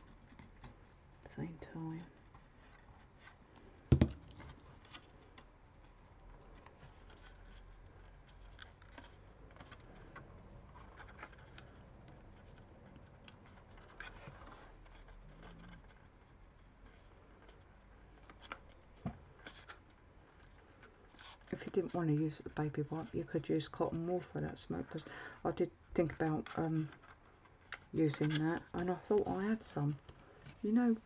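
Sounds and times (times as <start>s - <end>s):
card rustling and clicking: 2.4s - 21.9s
knock on desk: 3.9s - 4.2s.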